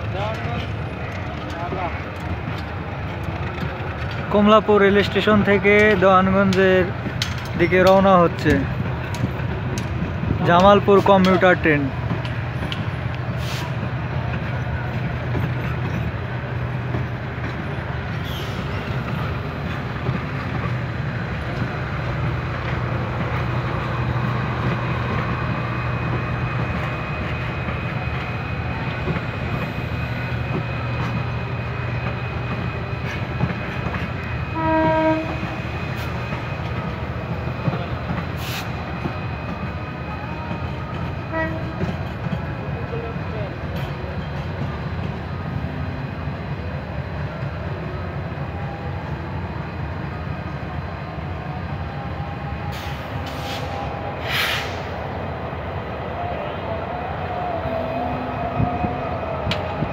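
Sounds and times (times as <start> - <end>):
train wheels running on rails: 0.0 - 59.9
train horn blast: 34.5 - 35.7, 41.3 - 42.0.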